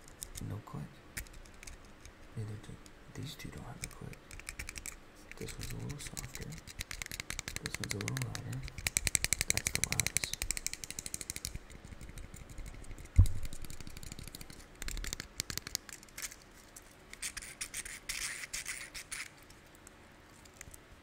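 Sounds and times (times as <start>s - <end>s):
fidget cube clicks: 3.8s - 16.4s
dull thump: 13.2s - 13.5s.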